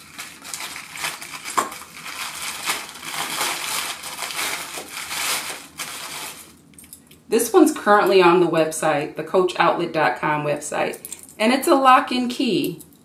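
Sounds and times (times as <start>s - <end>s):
tissue paper crinkling: 0.0s - 6.6s.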